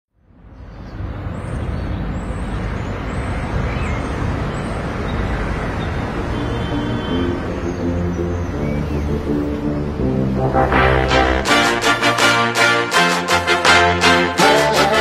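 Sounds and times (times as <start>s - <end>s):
dense steady rumbling: 0.3s - 12.5s
faint musical tones: 5.8s - 12.2s.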